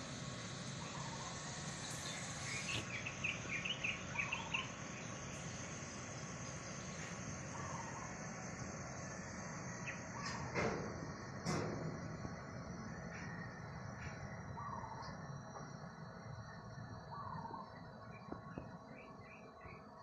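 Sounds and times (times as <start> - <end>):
steady background hiss: 0.0 - 20.0
birds chirping: 0.6 - 8.3, 8.9 - 10.5, 14.0 - 15.5, 16.1 - 20.0.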